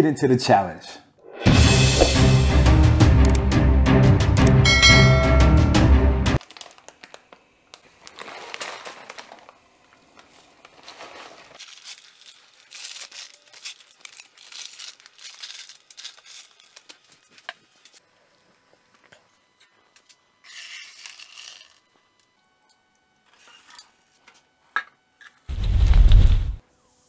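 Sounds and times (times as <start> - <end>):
intro music: 1.2 - 6.4
plastic packet crinkling: 6.4 - 18.0.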